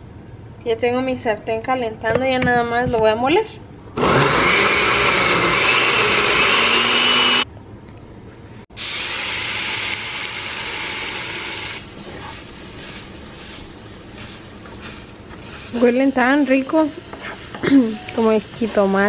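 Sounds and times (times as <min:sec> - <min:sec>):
blender whining: 0:04.0 - 0:07.4, 0:09.2 - 0:12.0
egg sizzling in hot pan: 0:08.8 - 0:19.0.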